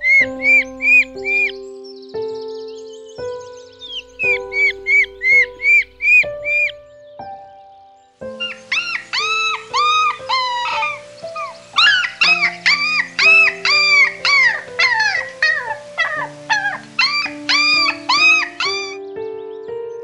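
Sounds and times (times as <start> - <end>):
puppies whining and yelping: 0.0 - 1.5, 3.9 - 6.7, 8.4 - 19.0
background music with held notes: 0.0 - 20.0.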